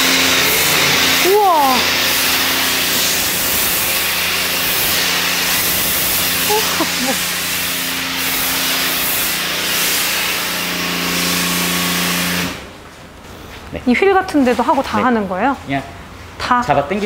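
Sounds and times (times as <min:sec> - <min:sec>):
foam spray hissing: 0:00.0 - 0:12.7.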